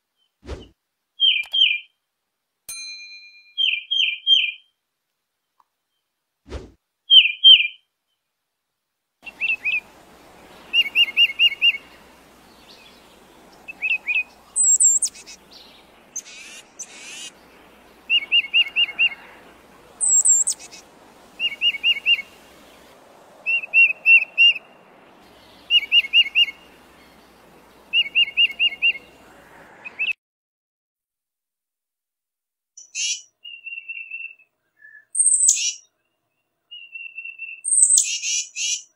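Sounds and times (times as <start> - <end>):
bird singing whistled notes: 1.2 - 1.9, 3.5 - 4.7, 7.1 - 7.8, 9.2 - 29.2, 32.8 - 38.9
faint background hiss: 4.5 - 30.0.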